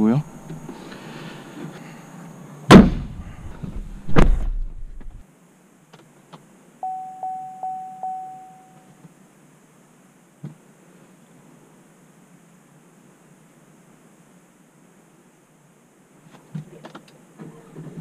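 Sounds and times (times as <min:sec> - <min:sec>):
heavy thunks: 0:02.7 - 0:05.2
electronic warning chime: 0:06.8 - 0:08.9.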